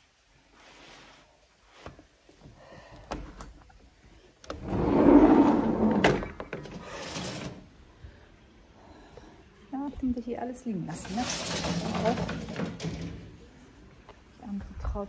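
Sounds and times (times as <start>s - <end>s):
glass door sliding: 4.5s - 7.8s, 10.9s - 13.5s.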